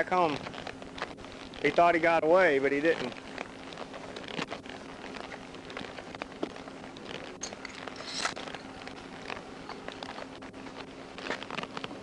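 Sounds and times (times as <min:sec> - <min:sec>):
faint steady hum: 0:00.0 - 0:12.0
footsteps on pavement: 0:02.8 - 0:12.0
clothing rustle: 0:03.0 - 0:12.0.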